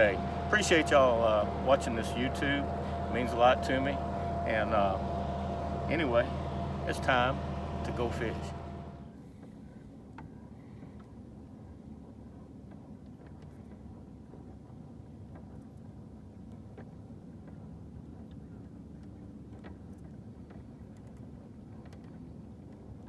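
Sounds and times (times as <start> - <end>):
boat motor running: 0.0 - 23.0
faint clicks: 18.2 - 23.0.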